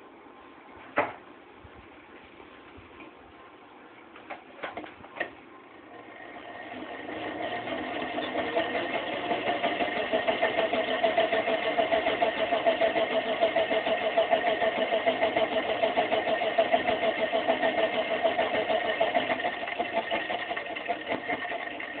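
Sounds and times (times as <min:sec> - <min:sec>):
spinning motor whirring: 0:05.9 - 0:22.0.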